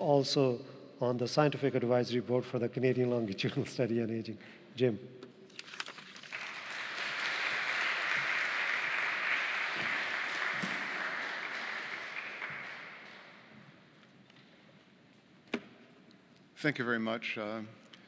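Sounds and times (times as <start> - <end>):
audience applauding: 6.2 - 13.6.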